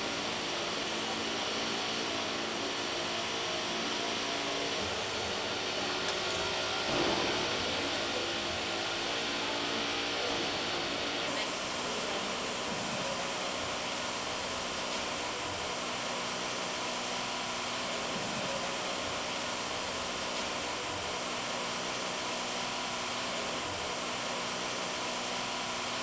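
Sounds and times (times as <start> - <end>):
factory machinery hum and hiss: 0.0 - 26.0.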